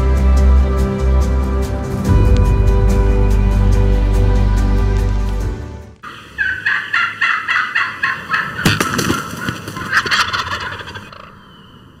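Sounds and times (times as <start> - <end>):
turkey calling: 6.0 - 12.0.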